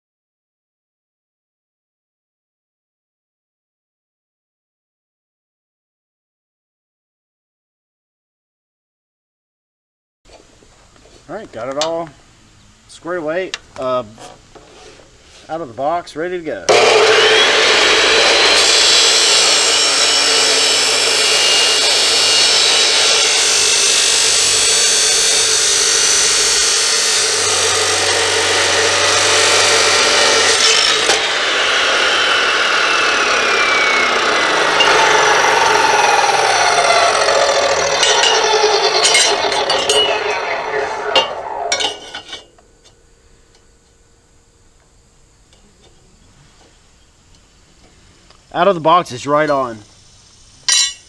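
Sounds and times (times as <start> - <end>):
cut-off saw grinding steel: 16.7 - 43.0, 50.6 - 51.0
motor whine winding down: 16.7 - 44.8.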